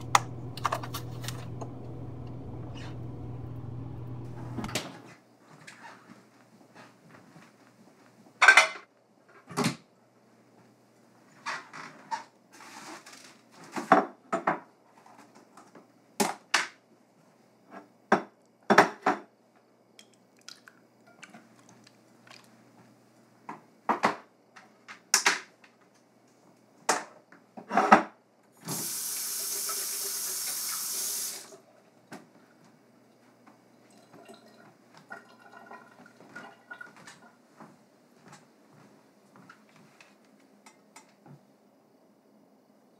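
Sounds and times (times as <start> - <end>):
tap running: 0.0 - 5.1.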